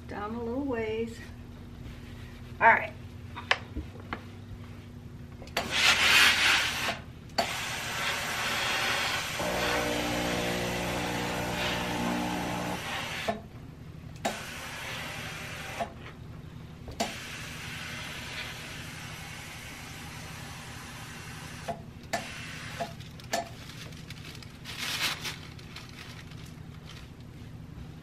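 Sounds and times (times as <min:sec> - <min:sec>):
steam iron hissing: 0:05.6 - 0:13.4, 0:14.3 - 0:15.9, 0:17.0 - 0:22.9.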